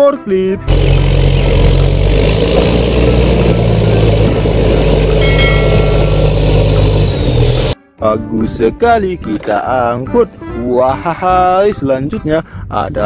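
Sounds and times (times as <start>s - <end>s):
wheel loader engine drone: 0.6s - 7.8s
brief high whine: 3.9s - 7.8s.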